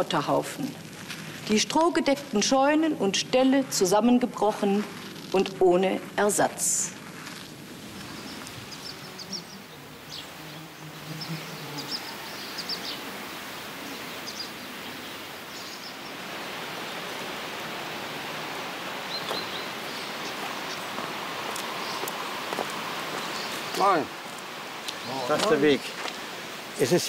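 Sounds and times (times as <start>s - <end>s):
steady outdoor hiss: 0.0s - 27.0s
bird chirps: 8.1s - 13.1s, 13.8s - 16.2s, 19.1s - 20.9s.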